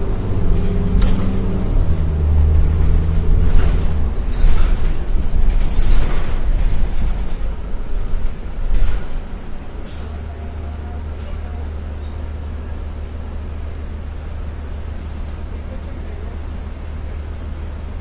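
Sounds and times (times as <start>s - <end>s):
bus engine running: 0.0s - 18.0s
road noise: 0.0s - 18.0s
knocks and rattles: 0.5s - 9.6s.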